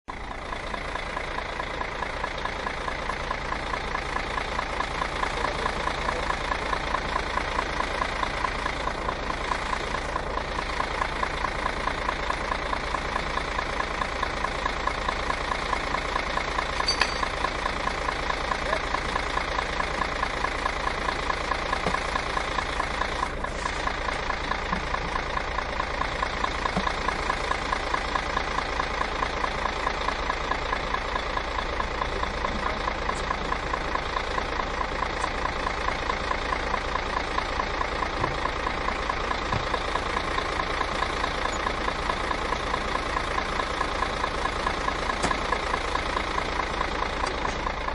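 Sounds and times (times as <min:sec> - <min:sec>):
bus engine idling: 0:00.1 - 0:47.9.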